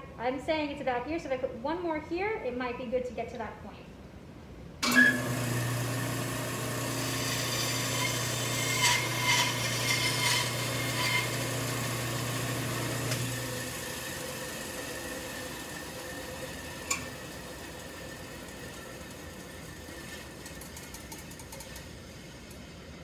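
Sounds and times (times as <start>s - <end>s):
saw blade cutting wood: 4.8s - 21.8s
band saw motor hum: 4.8s - 22.9s.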